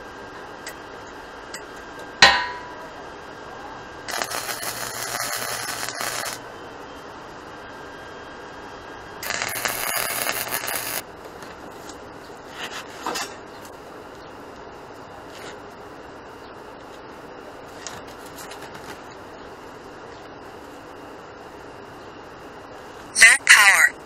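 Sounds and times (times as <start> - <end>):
arc welding crackle: 4.0 - 6.5, 9.0 - 12.0.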